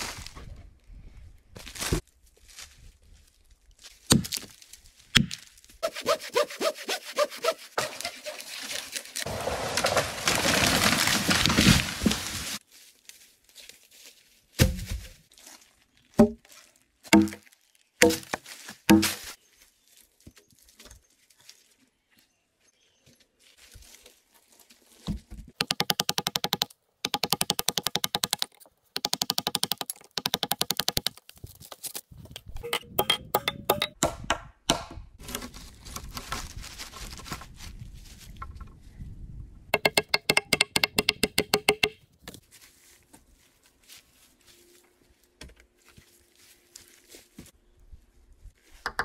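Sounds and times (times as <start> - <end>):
hammer knocking nail into log: 17.2 - 17.4.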